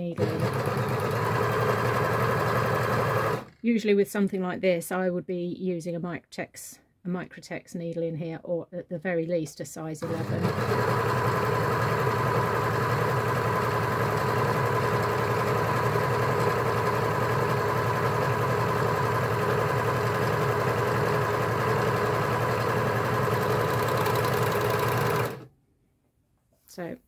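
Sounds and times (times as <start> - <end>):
overlocker sewing machine whirring: 0.0 - 3.5, 10.0 - 25.5.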